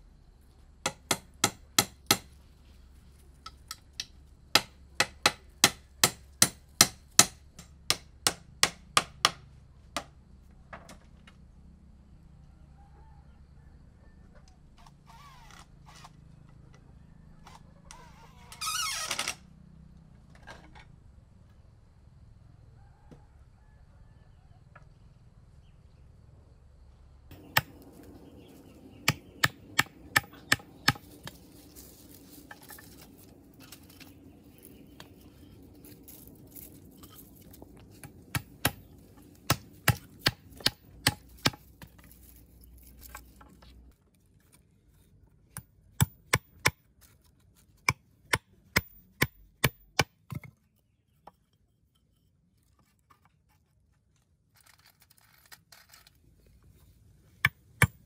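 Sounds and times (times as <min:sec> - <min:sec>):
tool striking wood: 0:00.8 - 0:02.4, 0:04.5 - 0:09.4, 0:27.3 - 0:28.1, 0:28.9 - 0:31.4, 0:37.6 - 0:42.0.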